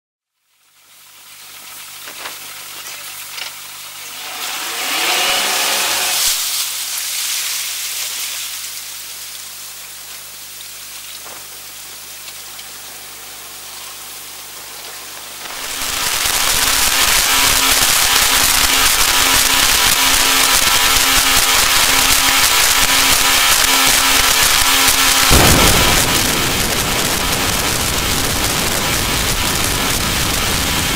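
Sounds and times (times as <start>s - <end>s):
water hissing: 1.2s - 9.9s, 15.3s - 30.9s
wind and water rushing: 25.3s - 30.9s.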